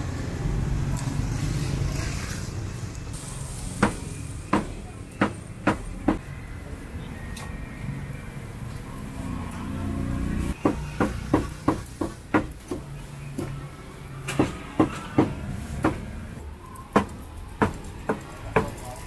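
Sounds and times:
cleaver chopping meat on wood: 0:16.9 - 0:18.8.

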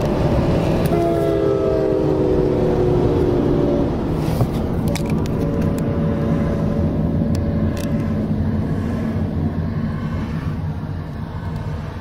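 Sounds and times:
car road and engine rumble: 0:00.0 - 0:12.0
train horn: 0:00.8 - 0:04.2.

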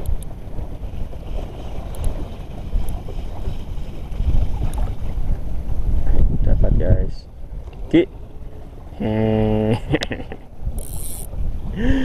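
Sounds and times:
choppy sea water: 0:00.0 - 0:12.0
wind buffeting microphone: 0:00.0 - 0:12.0
fishing reel ticking: 0:10.7 - 0:11.3.

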